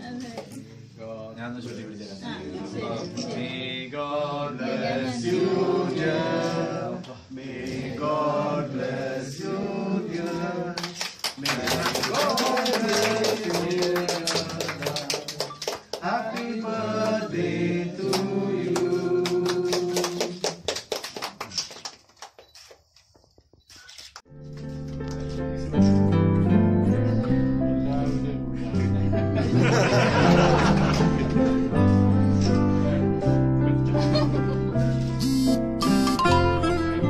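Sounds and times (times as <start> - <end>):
many hands clapping fast: 10.8 - 16.1, 18.1 - 22.8.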